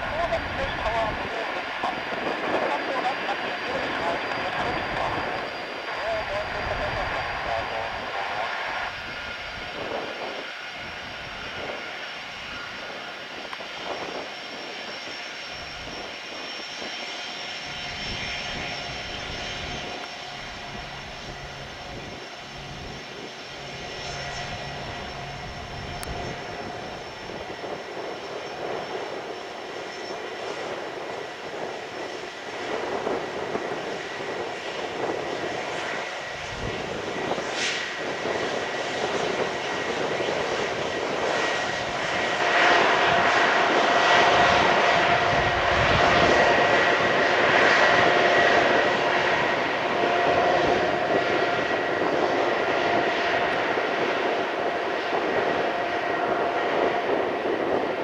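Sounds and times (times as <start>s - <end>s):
jet engines taxiing: 0.0s - 58.0s.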